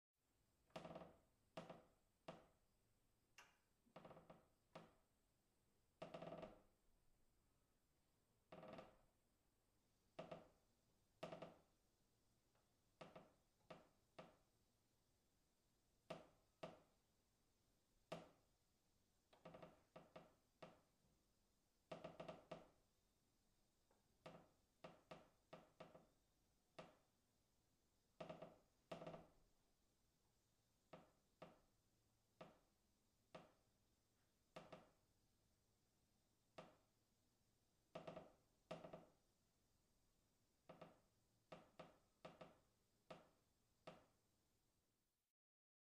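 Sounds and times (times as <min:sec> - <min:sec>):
wooden beam creaking: 0:06.0 - 0:06.7.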